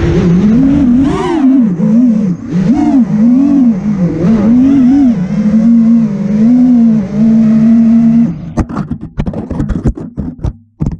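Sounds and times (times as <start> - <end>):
quadcopter motors whining: 0.0 - 8.5.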